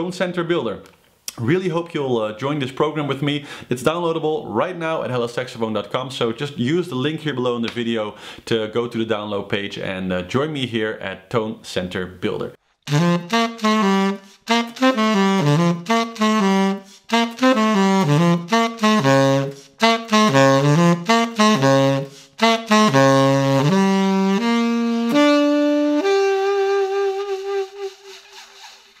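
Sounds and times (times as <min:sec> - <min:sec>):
player breathing: 0:03.4 - 0:03.7, 0:08.2 - 0:08.4, 0:22.1 - 0:22.4
tenor saxophone jazz phrases: 0:11.9 - 0:28.3.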